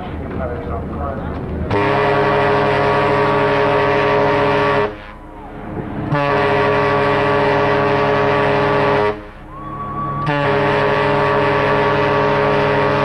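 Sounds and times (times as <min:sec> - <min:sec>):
steam whistle blasts: 0:01.7 - 0:05.2, 0:06.1 - 0:13.0.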